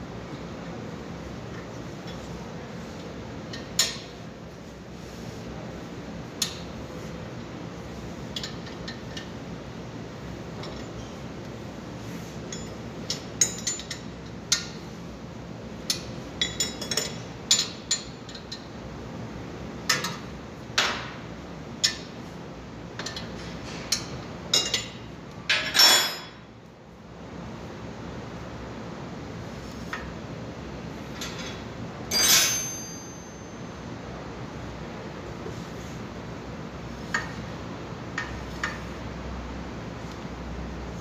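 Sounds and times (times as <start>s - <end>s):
steady background hum: 0.0s - 41.0s
metal parts clattering: 32.1s - 33.2s
metallic clinks of hand tools: 32.1s - 33.4s.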